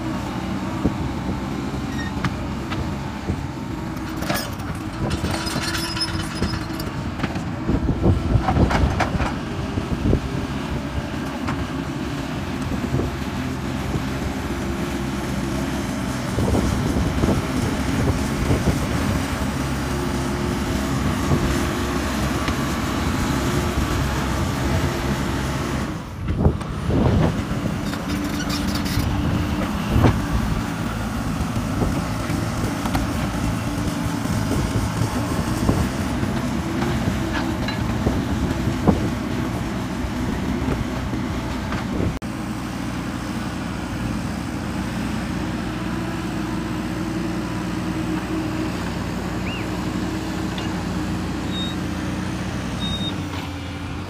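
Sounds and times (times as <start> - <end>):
diesel engines running under load: 0.0 - 54.0
buckets scraping dirt and stone: 27.8 - 30.2.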